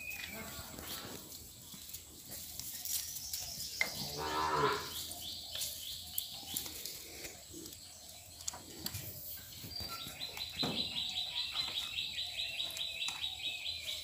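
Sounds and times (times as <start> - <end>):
birds chirping: 0.0 - 14.0
cow mooing: 4.0 - 5.0.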